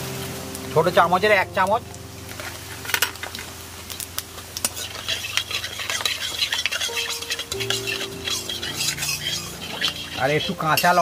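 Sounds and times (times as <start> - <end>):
seeds sizzling in hot oil: 0.0 - 11.0
metal spoon scraping pan: 4.6 - 11.0.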